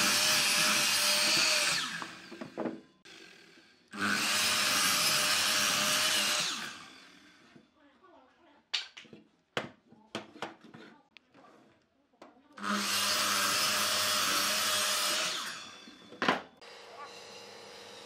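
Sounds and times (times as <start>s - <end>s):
miter saw cutting wood: 0.0s - 7.5s, 12.6s - 18.0s.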